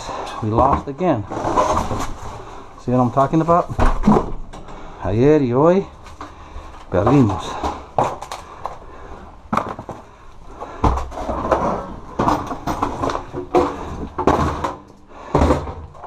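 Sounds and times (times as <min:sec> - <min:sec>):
scraping and rustling: 0:00.5 - 0:04.4, 0:09.5 - 0:16.0
objects knocking: 0:03.7 - 0:04.8, 0:07.0 - 0:08.8, 0:09.5 - 0:16.0.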